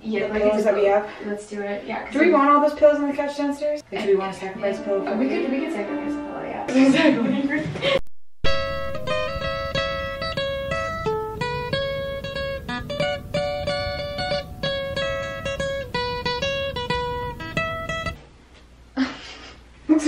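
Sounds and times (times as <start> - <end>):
plucked acoustic guitar tune: 8.4 - 18.2.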